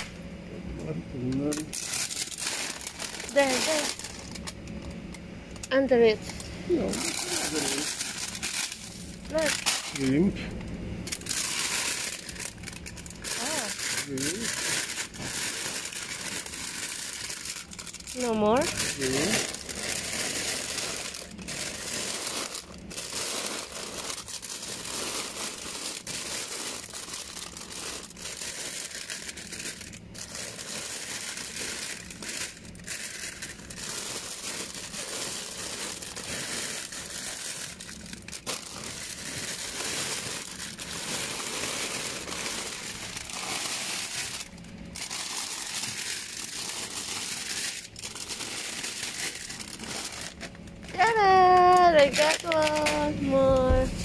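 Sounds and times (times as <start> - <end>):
sharp crackles of packets: 0.0 - 0.2, 1.2 - 54.0
plastic bags crinkling and rustling: 1.3 - 10.5, 11.1 - 54.0.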